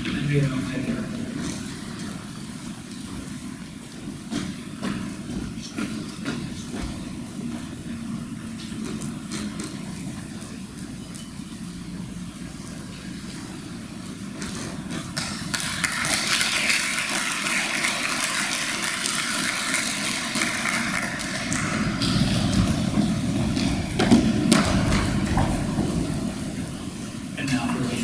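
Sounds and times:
audience clapping: 0:14.3 - 0:28.0.

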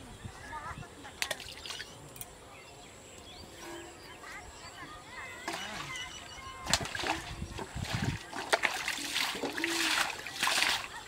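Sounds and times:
fish splashing in water: 0:05.5 - 0:11.0.

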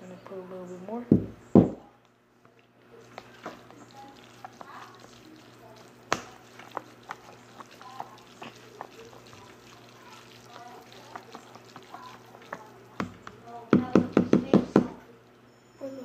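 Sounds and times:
fork stirring noodles: 0:03.0 - 0:14.2.

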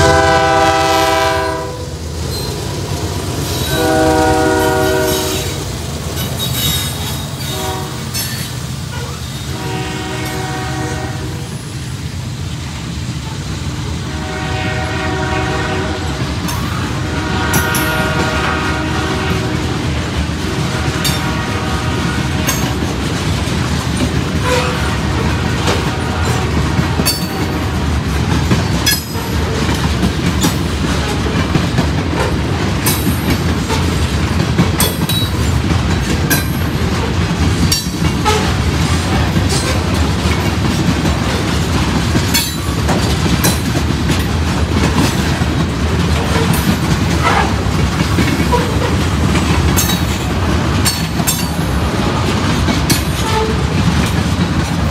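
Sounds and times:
train wheels rumbling on rails: 0:00.0 - 0:54.9
high wheel squeaks: 0:02.3 - 0:02.6, 0:06.2 - 0:09.5
wheels clicking over rail joints: 0:16.1 - 0:54.9.

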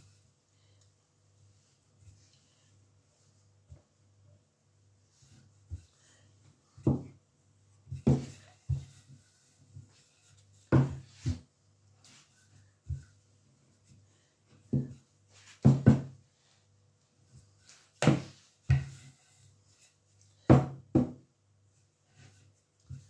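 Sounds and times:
rolling pin knocking on wooden board: 0:20.5 - 0:21.2.

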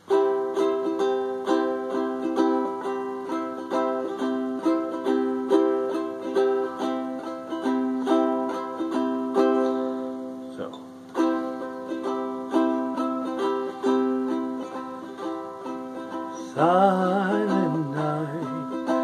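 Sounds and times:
ukulele strumming: 0:00.0 - 0:19.0.

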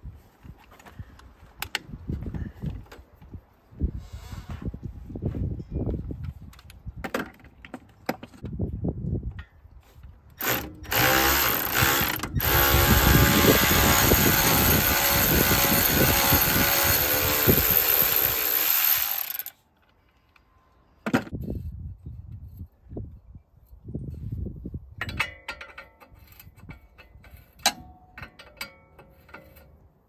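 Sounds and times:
power tool motor running: 0:10.4 - 0:19.5.

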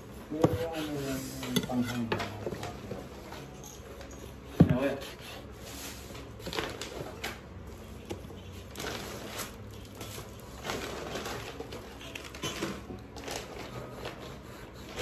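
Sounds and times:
shopping bags rustling: 0:05.8 - 0:14.2.

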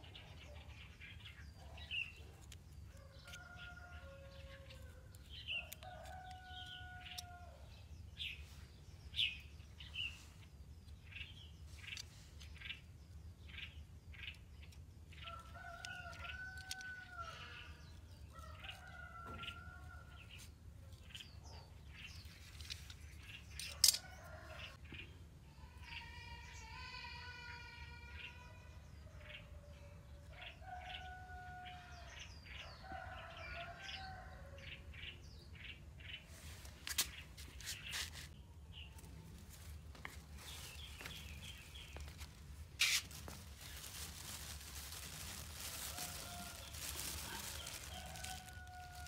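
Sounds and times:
small birds chirping: 0:00.0 - 0:49.0
plastic bag crinkling: 0:39.2 - 0:49.0.

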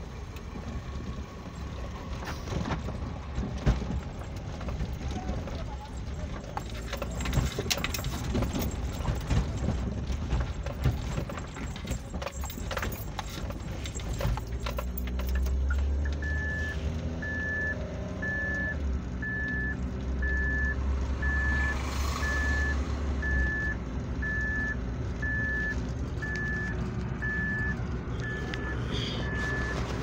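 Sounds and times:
low engine rumble: 0:00.0 - 0:30.0
electronic warning beeps: 0:15.2 - 0:30.0.

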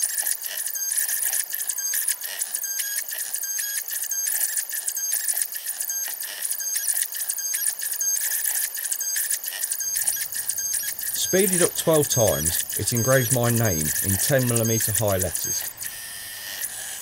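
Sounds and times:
machine engraving plastic whine: 0:00.0 - 0:17.0
pitched motor chirps: 0:00.0 - 0:17.0.

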